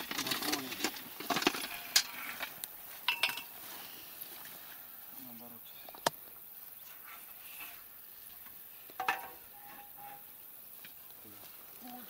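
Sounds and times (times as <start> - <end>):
stones clinking against metal: 0.0 - 3.6, 9.0 - 10.3.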